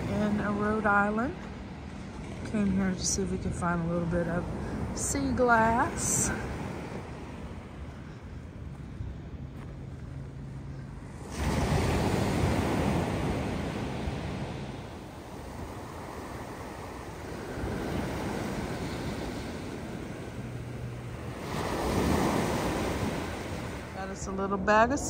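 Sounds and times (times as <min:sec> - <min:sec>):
surf breaking on beach: 0:11.2 - 0:24.6.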